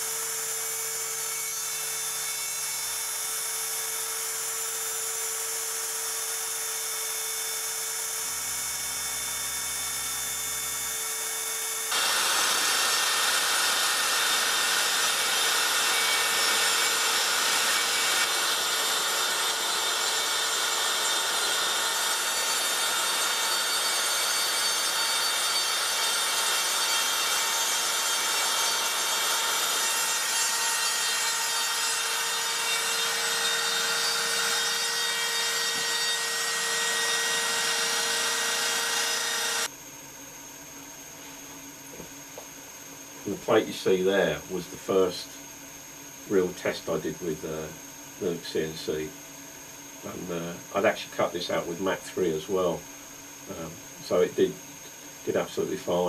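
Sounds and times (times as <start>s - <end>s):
router bit cutting plywood: 0.0s - 39.7s
cnc router spindle whine: 0.0s - 56.0s.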